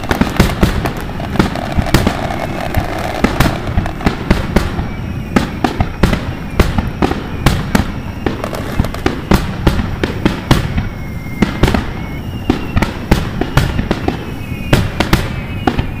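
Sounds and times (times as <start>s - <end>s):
faint firework whistles: 0.0s - 16.0s
fireworks bursting with sharp bangs: 0.0s - 16.0s
rumble of distant explosions: 0.0s - 16.0s.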